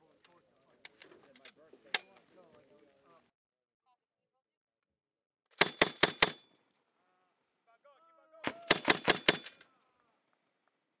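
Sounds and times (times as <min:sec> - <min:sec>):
grenade launcher firing bursts: 0:08.6 - 0:09.6.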